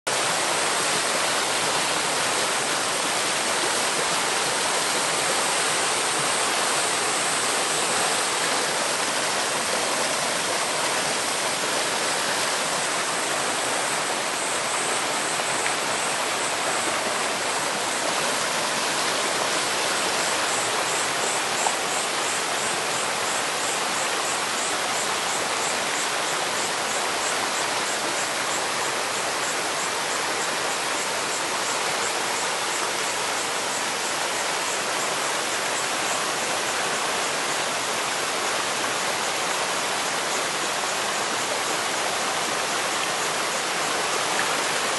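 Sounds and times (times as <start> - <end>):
stream rushing over boulders: 0.1 - 44.9.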